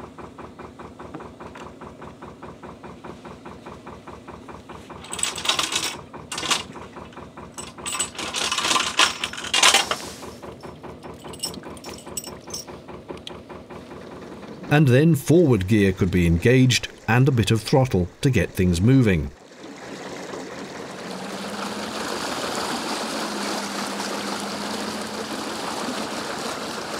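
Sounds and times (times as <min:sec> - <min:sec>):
chain rattling against steel: 0:05.0 - 0:12.8
diesel engine idling: 0:10.0 - 0:18.8, 0:20.0 - 0:26.9.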